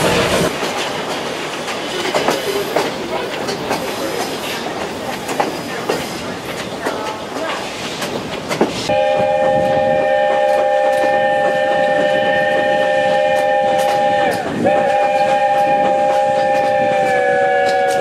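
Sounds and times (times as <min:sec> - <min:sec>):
train wheels clattering on rails: 0:00.0 - 0:18.0
steam locomotive whistle: 0:08.9 - 0:18.0.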